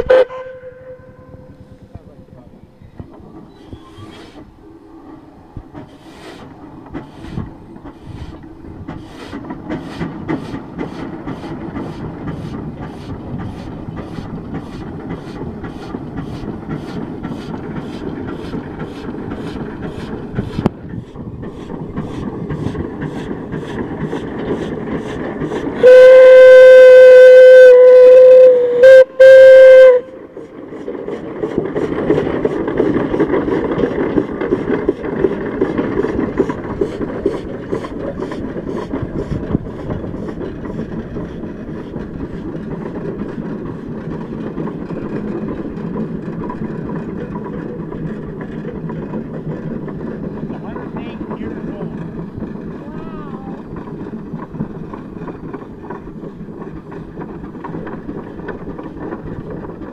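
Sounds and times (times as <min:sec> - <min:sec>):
loud steam whistle: 0:00.0 - 0:01.5, 0:25.8 - 0:30.2
steam engine exhaust chuffing: 0:03.1 - 0:59.9.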